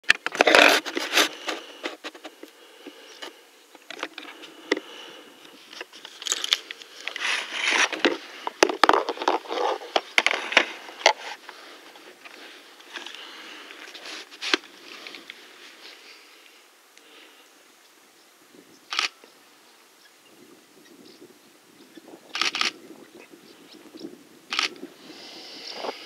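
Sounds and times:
handling noise near microphone: 0:00.0 - 0:15.8.

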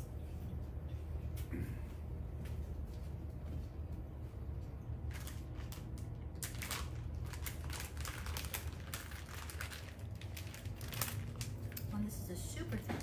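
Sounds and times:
steady low hum: 0:00.0 - 0:13.0
plastic packet crinkling: 0:05.1 - 0:12.2.

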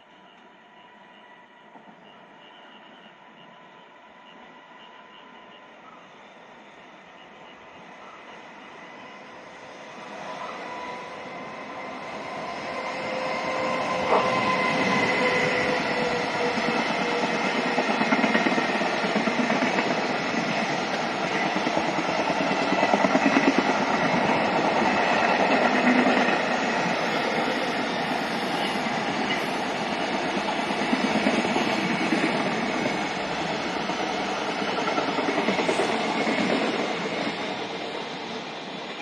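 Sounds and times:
train wheels clacking on rails: 0:10.1 - 0:39.0.

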